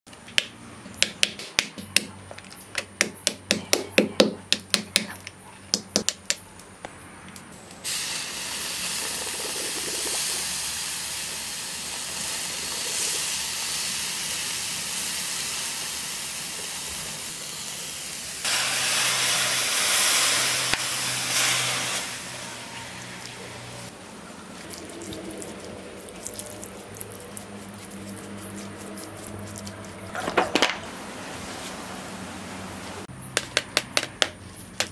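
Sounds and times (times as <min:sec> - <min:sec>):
molten metal pouring hiss: 0:07.8 - 0:23.9
brush scratching metal casting: 0:26.3 - 0:30.3
sharp wooden knocks: 0:33.3 - 0:34.9.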